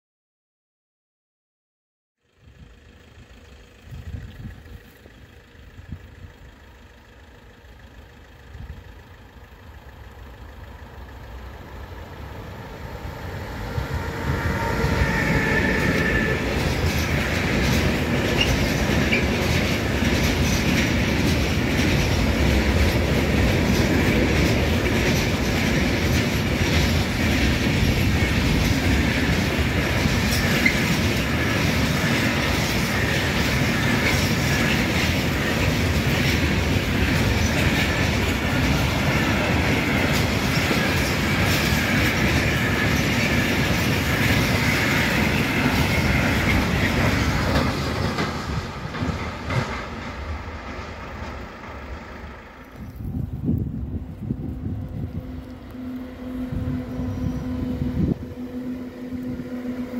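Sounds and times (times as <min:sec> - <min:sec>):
freight train rumbling past: 0:02.3 - 0:59.9
wheels clattering over rail joints: 0:07.6 - 0:53.0.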